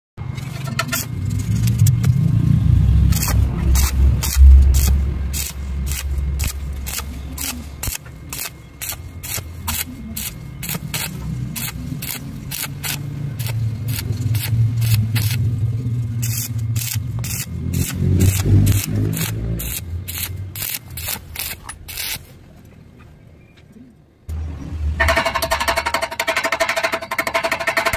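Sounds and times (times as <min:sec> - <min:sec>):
low hum: 0:00.2 - 0:26.4
welding arc crackling: 0:00.7 - 0:22.4.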